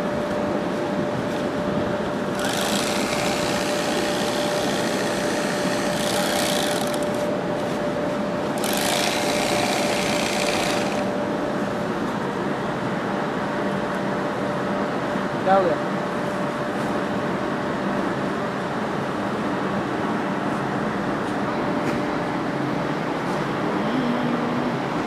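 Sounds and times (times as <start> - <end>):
steady mechanical hum: 0.0 - 25.0
sewing machine stitching sacks: 2.4 - 7.2, 8.6 - 11.1.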